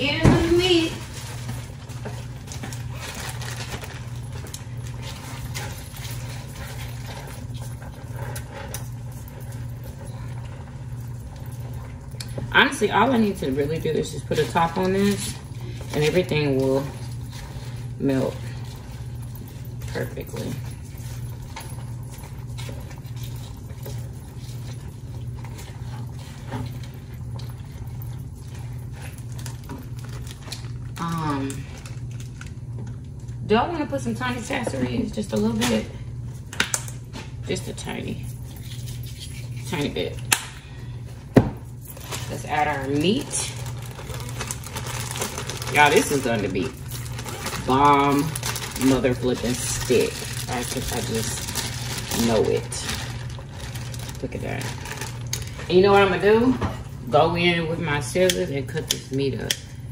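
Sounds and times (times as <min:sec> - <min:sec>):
kitchen appliance humming: 0:00.0 - 0:59.9.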